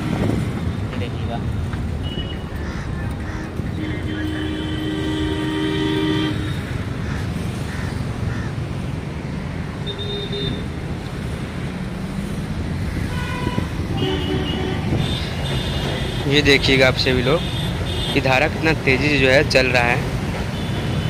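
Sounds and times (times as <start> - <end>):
road traffic rumble: 0.0 - 21.0
vehicle horns honking: 2.0 - 2.7, 3.6 - 6.8, 9.8 - 10.8, 13.0 - 18.8, 20.4 - 21.0.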